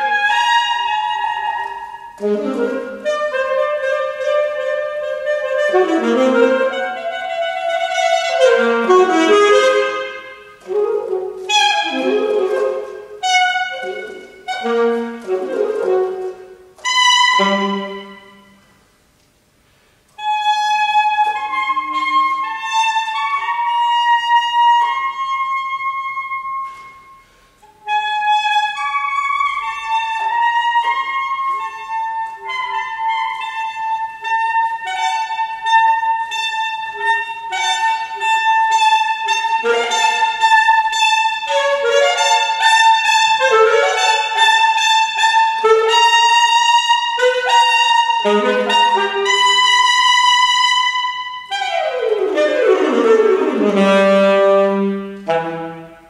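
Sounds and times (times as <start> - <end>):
solo alto saxophone: 0.0 - 18.8, 20.1 - 56.0.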